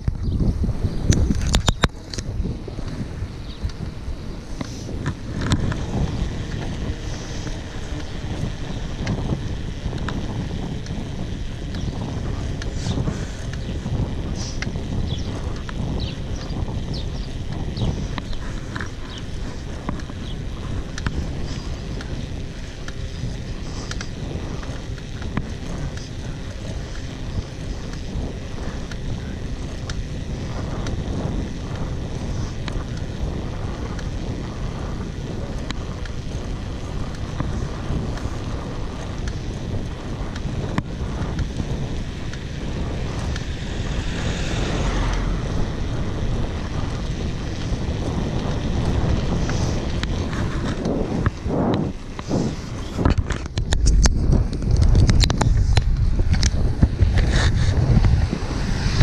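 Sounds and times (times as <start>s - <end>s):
bike tyres rumbling on road: 0.0s - 59.0s
wind buffeting microphone: 0.0s - 59.0s.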